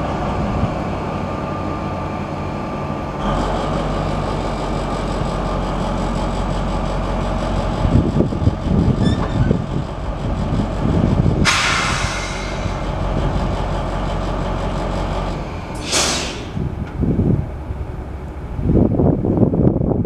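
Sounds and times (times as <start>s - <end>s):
diesel locomotive engine running: 0.0s - 20.0s
compressed air hiss: 11.4s - 12.8s, 15.8s - 16.6s.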